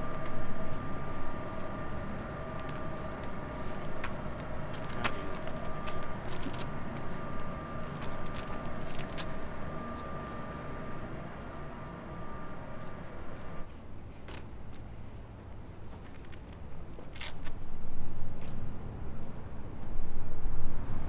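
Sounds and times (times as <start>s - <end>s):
constant hum: 0.0s - 21.0s
low city rumble: 0.0s - 21.0s.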